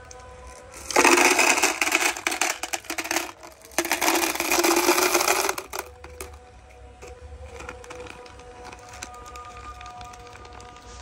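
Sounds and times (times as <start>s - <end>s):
buttons rattling into plastic jar: 0.7s - 6.3s.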